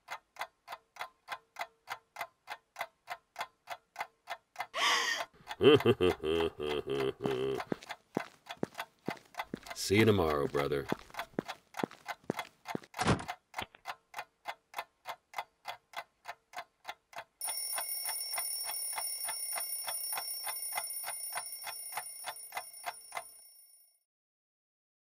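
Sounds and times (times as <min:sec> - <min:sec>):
clock ticking: 0:00.0 - 0:23.7
alarm clock ringing: 0:17.4 - 0:24.0.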